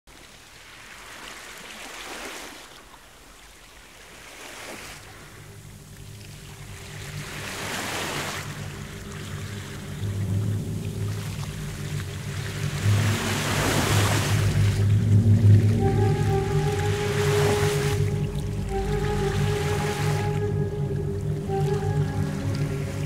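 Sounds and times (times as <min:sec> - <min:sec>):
water rushing in boat wake: 0:00.1 - 0:23.0
low steady hum: 0:05.2 - 0:23.0.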